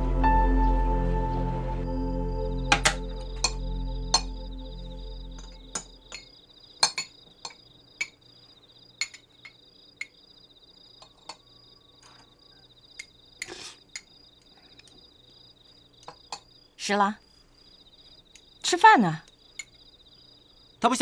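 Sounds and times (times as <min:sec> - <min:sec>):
music: 0:00.0 - 0:06.1
crickets chirping: 0:00.0 - 0:21.0.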